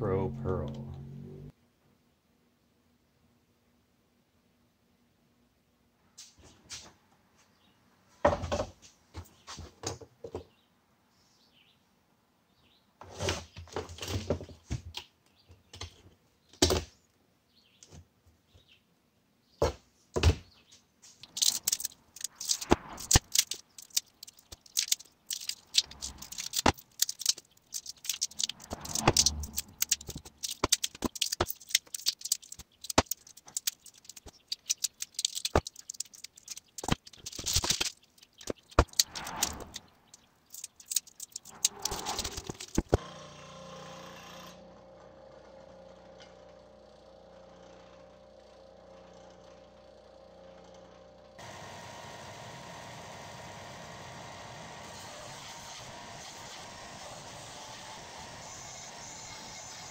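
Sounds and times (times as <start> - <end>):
small tools clicking and rattling: 21.2 - 43.0.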